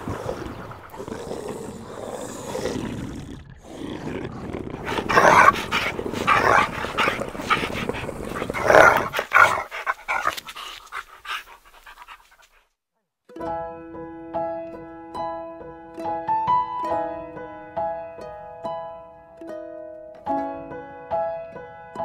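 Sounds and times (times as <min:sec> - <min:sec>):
dog barking and growling: 0:00.0 - 0:12.6.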